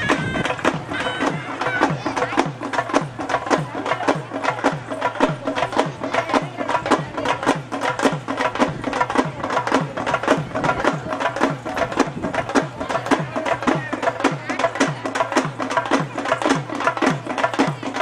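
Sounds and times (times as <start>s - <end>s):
reed pipe playing: 0.0s - 2.2s
drums beating fast rhythm: 0.0s - 18.0s.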